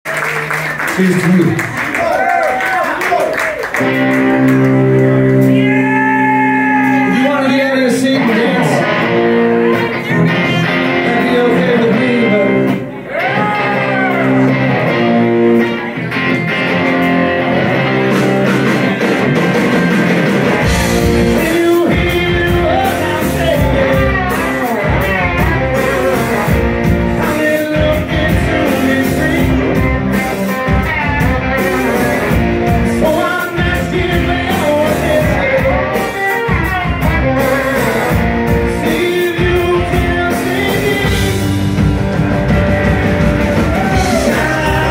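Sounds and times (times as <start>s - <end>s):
bass and drums: 3.7s - 44.9s
electric guitars bending lead lines: 3.7s - 44.9s
singing: 43.8s - 44.9s.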